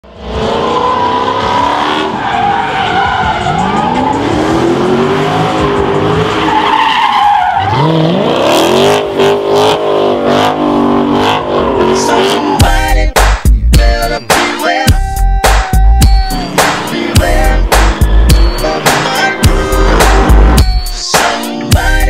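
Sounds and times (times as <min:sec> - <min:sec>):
car engine revving: 0:00.0 - 0:13.6, 0:15.3 - 0:22.0
tyres squealing: 0:00.6 - 0:08.3, 0:14.8 - 0:21.0.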